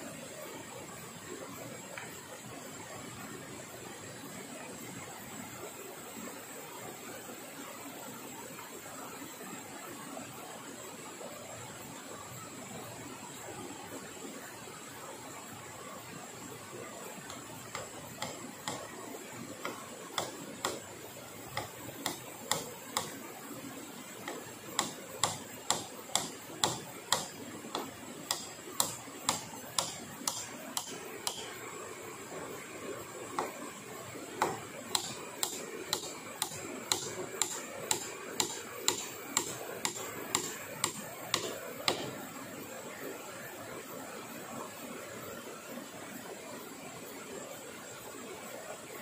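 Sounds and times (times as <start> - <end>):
hand tool striking wood: 17.3 - 18.9, 19.6 - 20.9, 21.5 - 23.2, 24.2 - 31.6, 33.4 - 33.6, 34.4 - 42.2.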